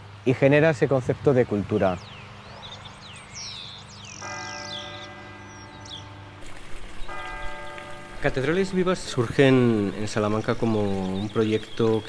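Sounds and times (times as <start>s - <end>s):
small birds chirping: 0.0s - 12.0s
church bell ringing: 4.1s - 11.5s.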